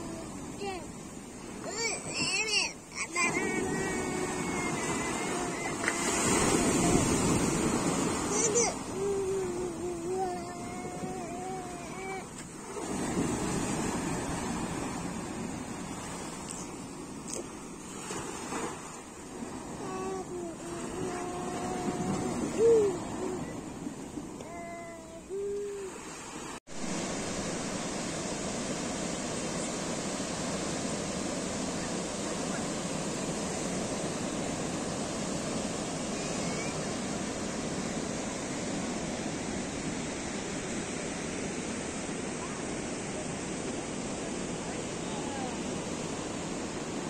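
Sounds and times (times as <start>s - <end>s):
sea surf washing ashore: 0.0s - 47.0s
wind on microphone: 3.2s - 26.0s.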